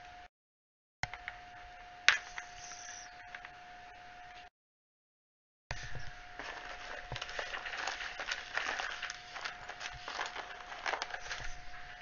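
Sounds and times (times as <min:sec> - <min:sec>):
hands handling small pieces: 0:06.4 - 0:11.6.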